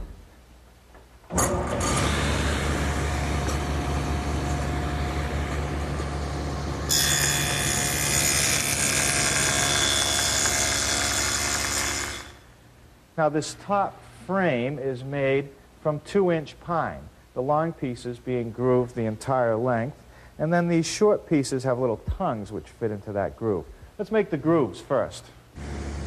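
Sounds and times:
table saw motor running: 1.8 - 12.3, 25.6 - 26.0
saw cutting wood: 1.8 - 12.4.

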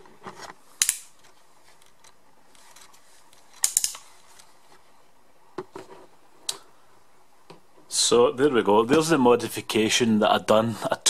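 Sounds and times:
crisp clicks and rustles: 0.0 - 4.9.

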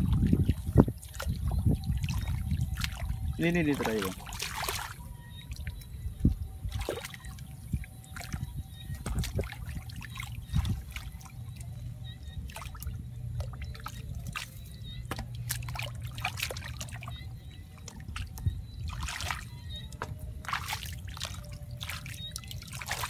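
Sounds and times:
water trickling and splashing: 0.0 - 23.0.

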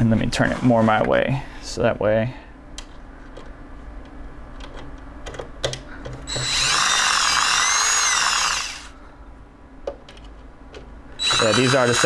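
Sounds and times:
power drill whining: 6.3 - 8.9, 11.2 - 12.0.

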